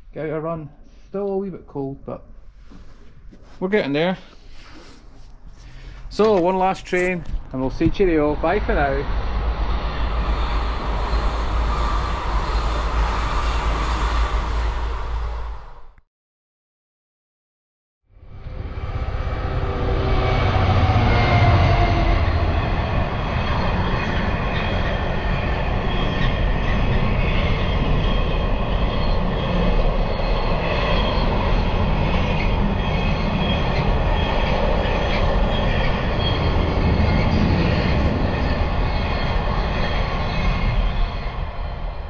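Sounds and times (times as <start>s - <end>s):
freight train rumbling: 6.2s - 16.0s, 18.2s - 42.0s
high wheel squeals: 9.6s - 14.4s, 18.6s - 42.0s.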